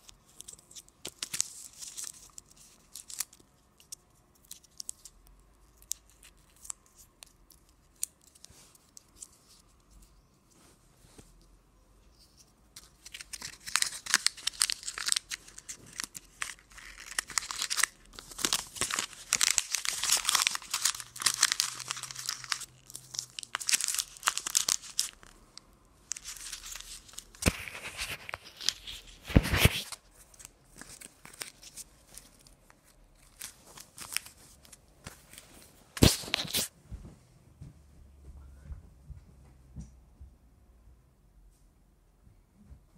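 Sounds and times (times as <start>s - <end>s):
crinkly packaging crackling: 0.0s - 10.2s, 12.7s - 36.7s.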